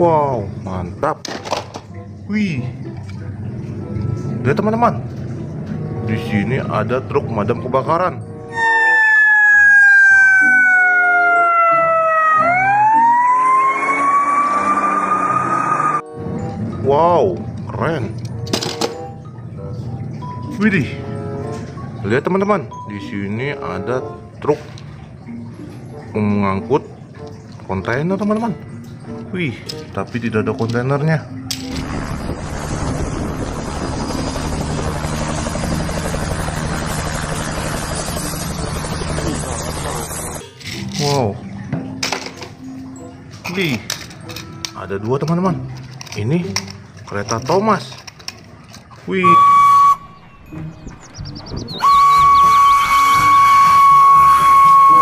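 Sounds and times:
fire engine siren wailing: 8.4s - 16.1s, 49.2s - 51.0s, 51.6s - 55.0s.

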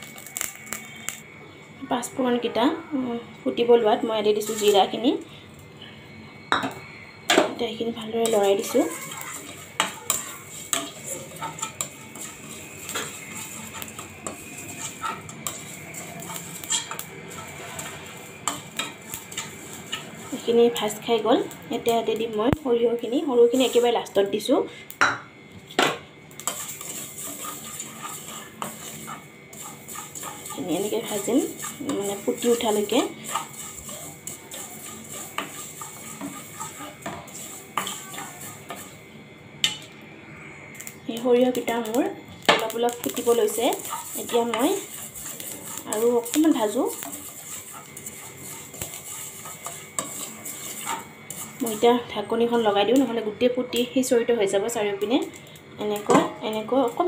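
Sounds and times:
spices frying in hot oil: 0.0s - 57.0s
spatula scraping and tapping pan: 4.3s - 5.0s, 6.5s - 24.0s, 25.7s - 40.0s, 41.5s - 53.1s.

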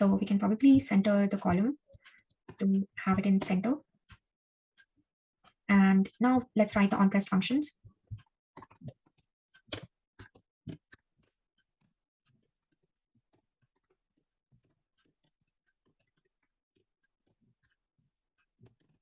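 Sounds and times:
keyboard typing: 8.1s - 17.8s, 18.4s - 19.0s.

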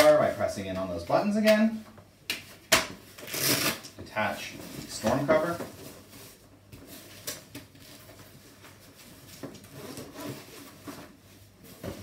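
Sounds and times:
fabric rubbing and rustling: 4.5s - 12.0s.

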